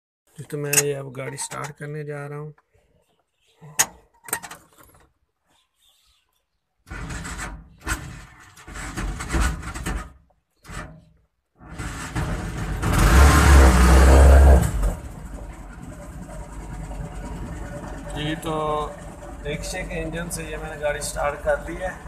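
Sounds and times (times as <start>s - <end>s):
engine cranking: 11.6s - 22.0s
engine running and idling: 11.8s - 22.0s.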